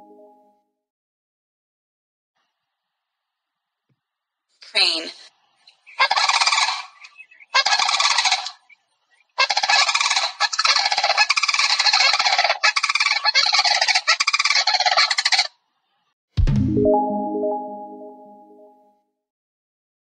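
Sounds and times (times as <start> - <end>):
crane calling: 5.9 - 8.8, 9.4 - 15.5.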